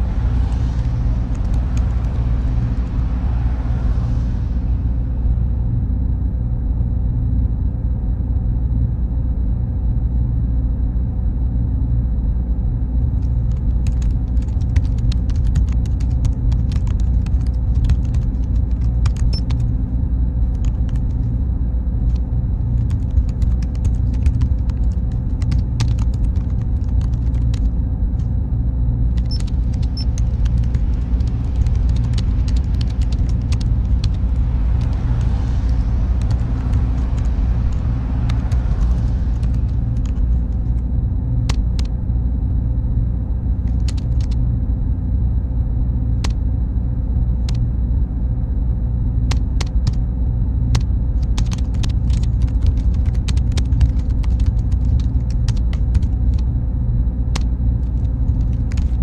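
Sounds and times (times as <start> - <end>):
car passing with tyre hiss: 0.0 - 5.6, 33.9 - 40.0
faint high whine: 0.0 - 59.0
server drone: 0.0 - 59.0
keyboard typing: 0.4 - 2.2, 13.3 - 19.7, 20.5 - 21.3, 22.1 - 27.7, 29.1 - 40.8, 41.5 - 41.9, 43.7 - 44.4, 49.3 - 50.0, 50.7 - 56.4, 57.4 - 59.0.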